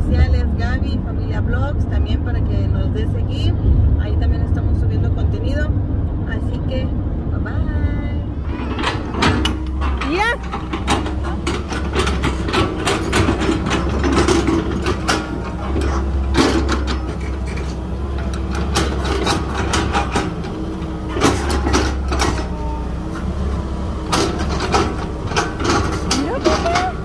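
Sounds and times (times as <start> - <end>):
excavator diesel engine running: 0.0 - 27.0
bucket and tracks clanking: 8.3 - 27.0.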